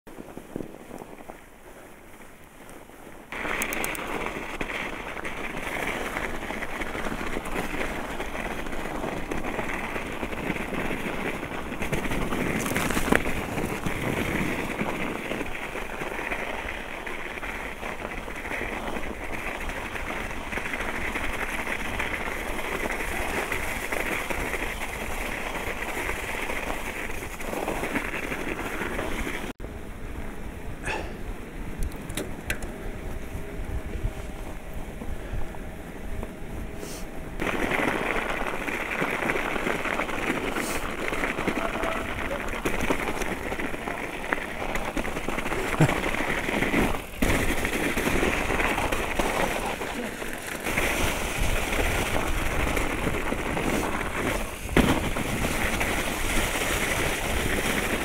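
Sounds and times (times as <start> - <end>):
bike tyres through snow: 0.1 - 58.0
wind on microphone: 17.7 - 58.0.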